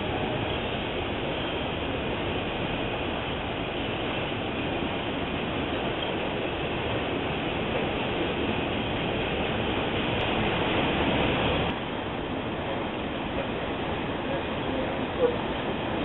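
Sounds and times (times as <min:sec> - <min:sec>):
freight train wheels on rail: 0:00.0 - 0:16.0.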